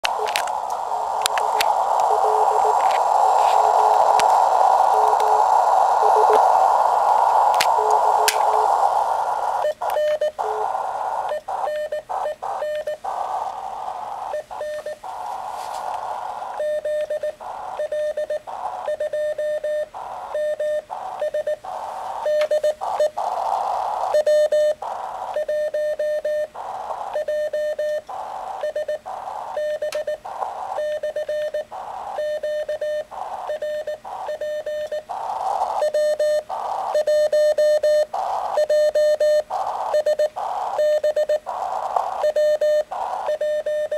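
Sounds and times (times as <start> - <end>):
morse code tone: 0.0 - 15.8, 35.7 - 41.5
radio band noise hiss: 0.0 - 43.9.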